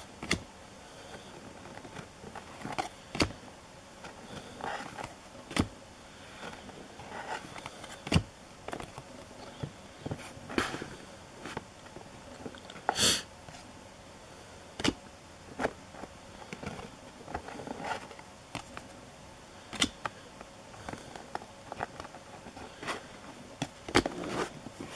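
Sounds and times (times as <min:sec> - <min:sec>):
cards rustling: 0:01.0 - 0:03.4, 0:06.3 - 0:12.8
cards tapping and clicking: 0:01.4 - 0:03.4, 0:19.7 - 0:22.1.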